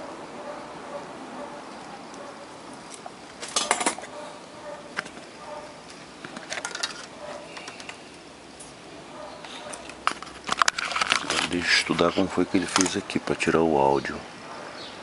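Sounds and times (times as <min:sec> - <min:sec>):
tools clicking and clinking: 0:06.3 - 0:08.0, 0:09.4 - 0:13.0.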